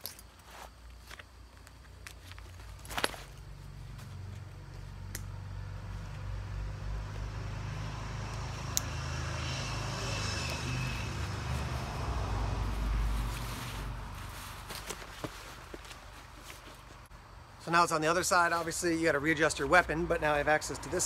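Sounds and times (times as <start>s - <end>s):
passing vehicle engine rumble: 3.2s - 14.8s.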